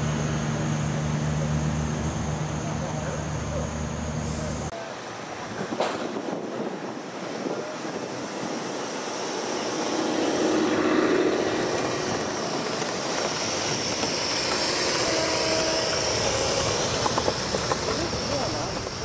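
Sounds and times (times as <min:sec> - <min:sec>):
model train wheels clattering on rails: 0:11.6 - 0:19.0.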